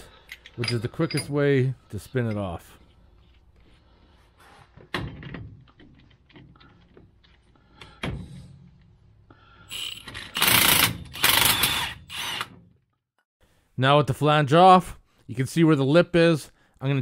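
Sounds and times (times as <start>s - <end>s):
impact wrench bursts: 9.7s - 12.6s.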